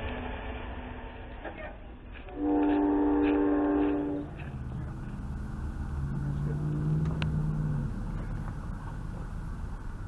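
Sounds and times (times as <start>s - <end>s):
diesel locomotives droning: 0.0s - 10.0s
locomotive air horn chord: 2.3s - 4.6s.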